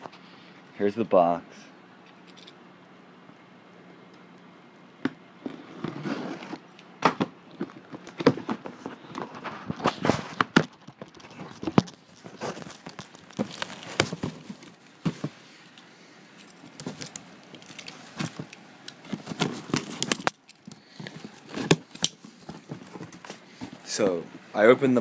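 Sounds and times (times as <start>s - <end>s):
cardboard box being opened: 5.5s - 6.6s.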